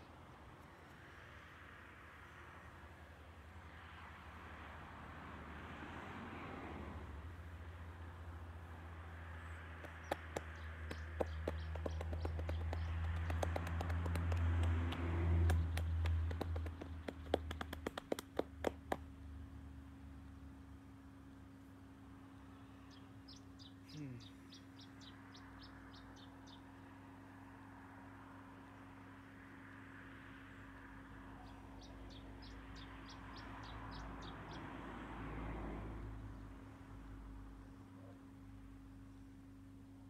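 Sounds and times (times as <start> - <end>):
bird ticking: 9.8 - 14.3.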